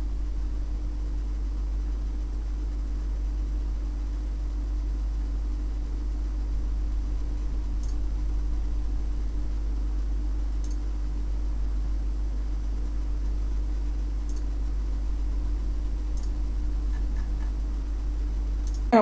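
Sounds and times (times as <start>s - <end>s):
low hum with hiss: 0.0s - 19.0s
faint short clicks: 7.8s - 8.0s, 10.6s - 10.8s, 14.3s - 14.5s, 18.6s - 18.8s.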